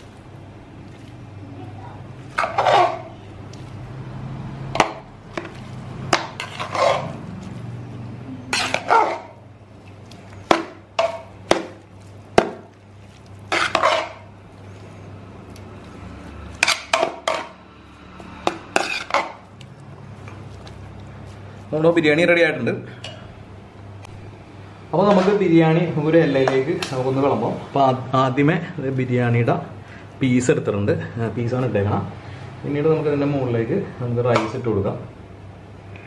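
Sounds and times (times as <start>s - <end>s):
metal spoon scraping metal pot: 2.3s - 3.3s, 6.1s - 7.2s, 8.4s - 9.4s, 13.5s - 14.3s, 16.4s - 17.6s, 18.4s - 19.4s.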